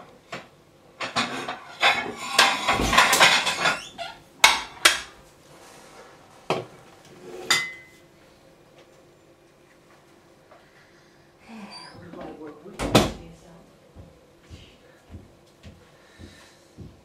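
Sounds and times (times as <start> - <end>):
crockery clattering: 1.0 - 5.1, 7.5 - 7.9.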